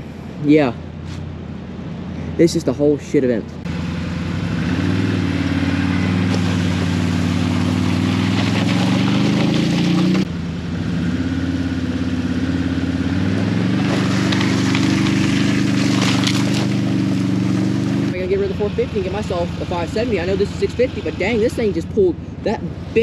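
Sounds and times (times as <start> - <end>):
atv engine running under load: 3.6 - 23.0
log scraping over gravel: 6.0 - 10.3, 13.1 - 20.4.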